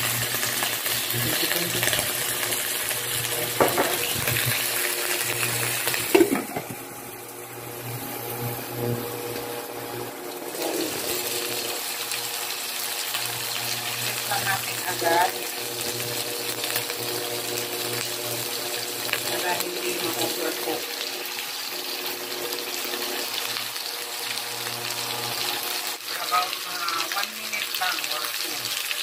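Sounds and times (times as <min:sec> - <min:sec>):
shrimp sizzling in hot oil: 0:00.0 - 0:29.0
glass lid knocking onto pan: 0:03.6 - 0:04.0, 0:06.1 - 0:06.8.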